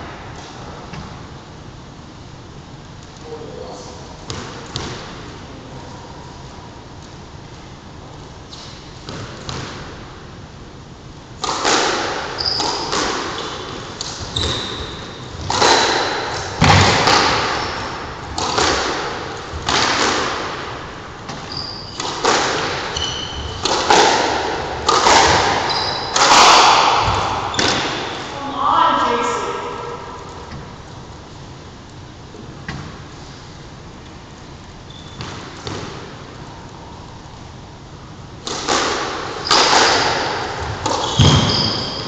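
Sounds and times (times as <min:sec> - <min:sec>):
squash ball hitting racquets and walls: 0:04.2 - 0:05.4, 0:08.6 - 0:10.3, 0:11.3 - 0:28.4, 0:34.9 - 0:36.5, 0:37.5 - 0:42.0
shoes squeaking on wooden floor: 0:12.4 - 0:13.6, 0:14.2 - 0:15.0, 0:21.3 - 0:22.1, 0:22.9 - 0:23.6, 0:25.6 - 0:26.2, 0:40.6 - 0:42.0.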